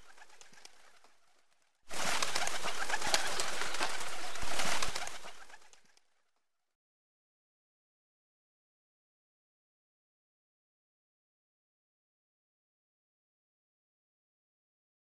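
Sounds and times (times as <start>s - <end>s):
pigeons wings fluttering: 0.0s - 6.1s.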